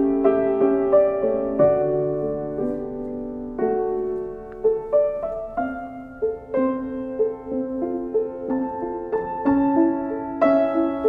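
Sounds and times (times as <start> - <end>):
slow gentle piano melody: 0.0 - 11.0.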